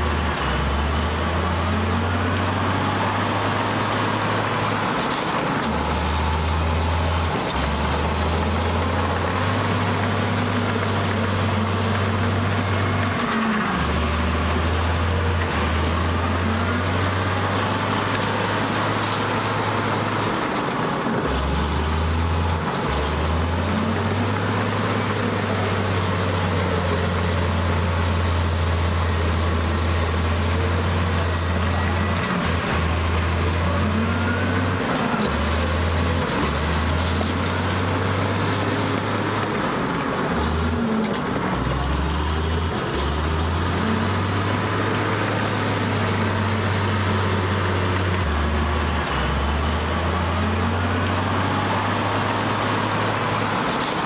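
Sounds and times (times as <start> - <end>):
heavy diesel engine droning: 0.0 - 54.0.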